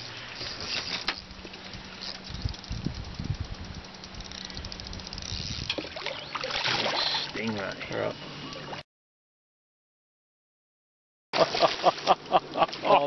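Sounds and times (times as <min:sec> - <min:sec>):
stingray splashing in water: 0:05.7 - 0:07.4.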